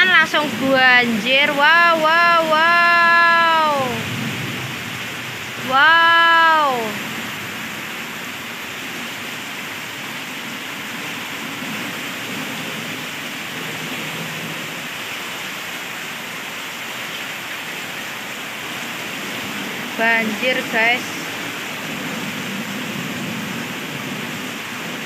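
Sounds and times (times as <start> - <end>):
heavy rain splashing into water: 0.0 - 25.0.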